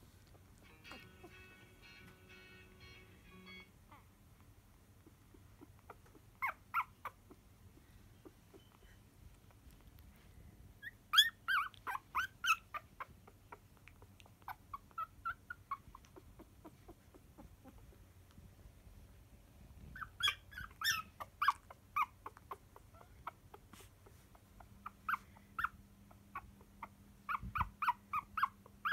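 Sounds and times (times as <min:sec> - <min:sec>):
puppies squeaking and whimpering: 0:05.0 - 0:09.0, 0:10.8 - 0:18.0, 0:19.8 - 0:28.9.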